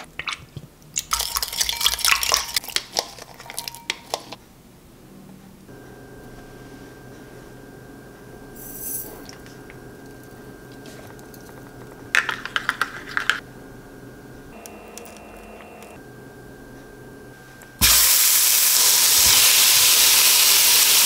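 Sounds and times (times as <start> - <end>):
water pouring with clicks and splashes: 0.0 - 3.7
faint steady hum: 3.6 - 19.1.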